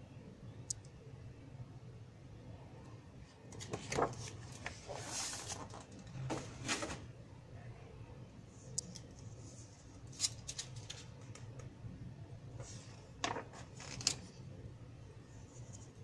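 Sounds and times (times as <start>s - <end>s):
magazine page turning: 3.5s - 7.0s, 12.6s - 14.3s.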